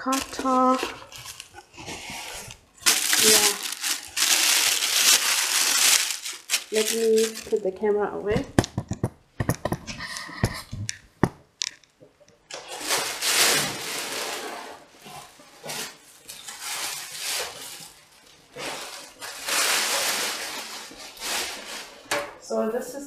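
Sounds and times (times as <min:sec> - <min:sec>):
plastic and cardboard rustling: 0:00.0 - 0:11.9, 0:12.5 - 0:22.3.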